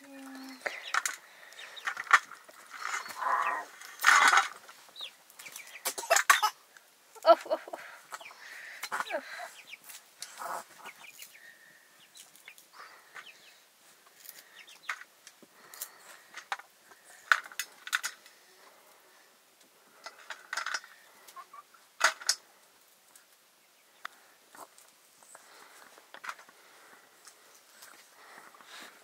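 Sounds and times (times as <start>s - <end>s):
chickens clucking: 0.2s - 6.6s, 7.2s - 13.6s, 20.2s - 21.9s, 23.9s - 24.9s.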